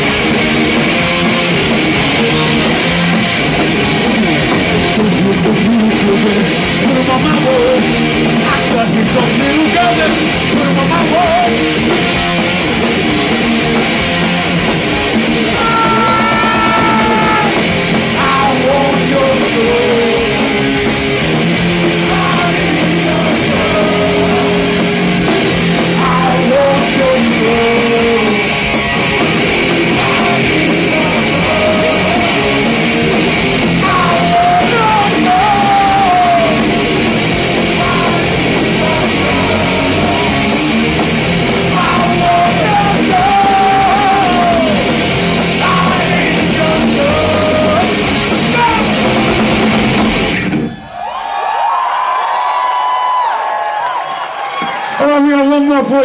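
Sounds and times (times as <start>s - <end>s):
punk rock band playing: 0.0s - 56.0s
man singing: 1.9s - 3.0s, 4.8s - 11.7s, 15.4s - 20.8s, 21.9s - 29.0s, 29.6s - 40.8s, 41.5s - 49.1s.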